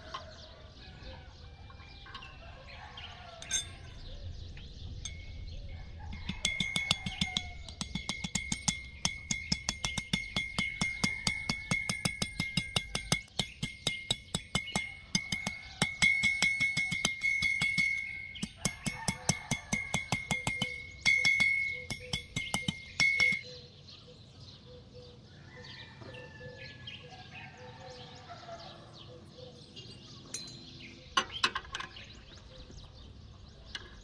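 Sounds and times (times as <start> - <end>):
faint birds chirping: 0.0 - 15.8, 17.5 - 34.0
hammer striking metal on anvil: 3.4 - 3.9, 6.2 - 23.5.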